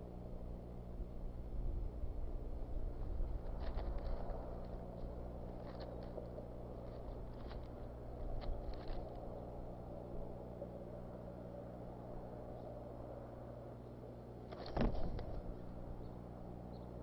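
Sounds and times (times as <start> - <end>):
steady low hum: 0.0 - 17.0
twigs crackling and snapping: 3.1 - 9.5, 14.5 - 15.8.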